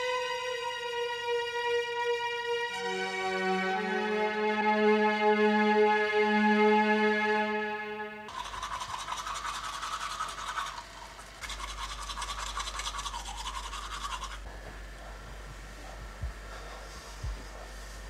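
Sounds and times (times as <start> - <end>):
toothbrush scrubbing teeth: 8.3 - 15.2.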